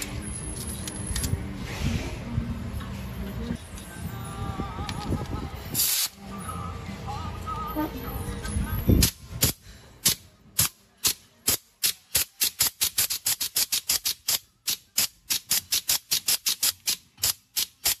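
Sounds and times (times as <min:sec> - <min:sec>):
pneumatic plier clicking: 0:09.0 - 0:18.0.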